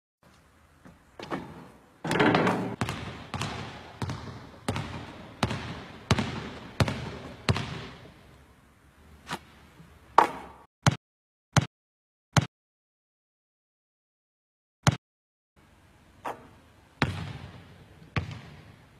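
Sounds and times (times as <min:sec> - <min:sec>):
basketball bouncing on hard court: 0:01.2 - 0:08.1, 0:16.2 - 0:18.8.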